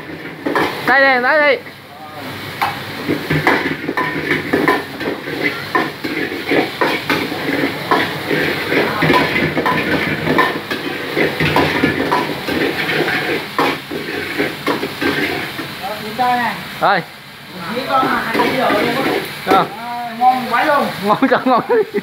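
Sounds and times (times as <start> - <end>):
sizzling hiss: 0.0 - 22.0
ladle scraping steel wok: 2.6 - 15.8, 17.6 - 19.6.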